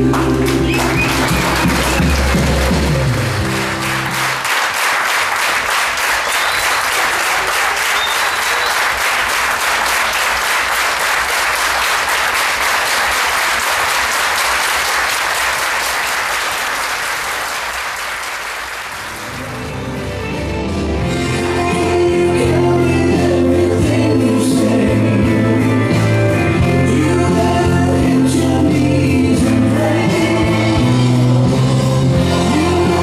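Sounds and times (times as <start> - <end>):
crowd clapping: 0.0 - 22.0.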